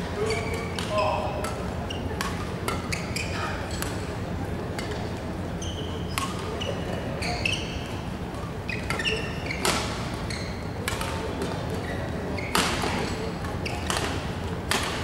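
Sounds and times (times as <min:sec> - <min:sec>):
low hall hum: 0:00.0 - 0:15.0
shoes squeaking on court: 0:00.1 - 0:04.0, 0:04.8 - 0:15.0
rackets hitting shuttlecock: 0:00.6 - 0:03.0, 0:09.6 - 0:10.1, 0:10.8 - 0:11.6, 0:12.5 - 0:15.0.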